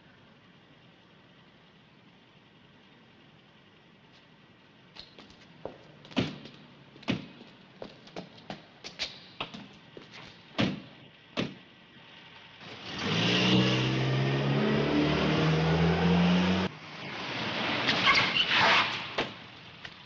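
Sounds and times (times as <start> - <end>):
car engine revving: 12.6 - 17.8.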